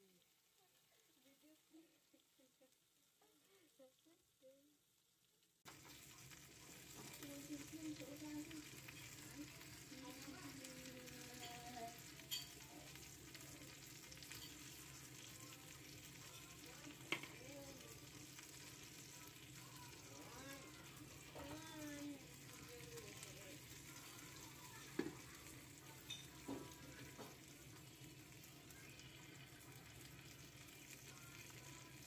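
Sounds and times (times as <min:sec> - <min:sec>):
meat sizzling in hot oil: 0:00.0 - 0:32.0.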